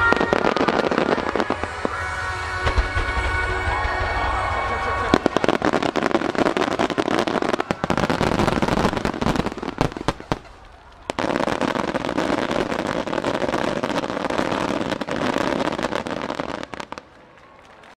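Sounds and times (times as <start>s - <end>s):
music: 0.0s - 6.4s
fireworks bursting and crackling: 0.0s - 17.2s.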